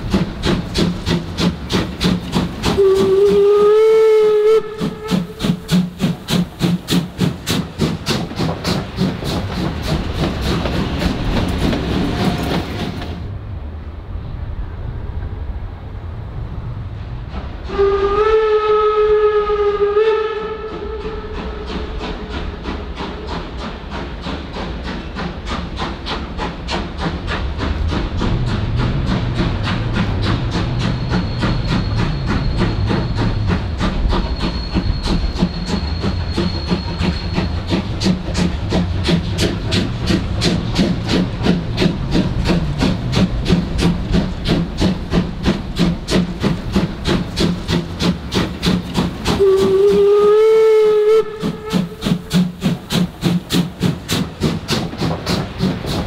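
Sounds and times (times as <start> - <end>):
steam hissing: 0.0 - 13.2, 17.2 - 56.0
steam locomotive exhaust beat: 0.0 - 13.4, 16.3 - 56.0
steam whistle blast: 2.8 - 5.8, 17.7 - 21.7, 49.4 - 52.3.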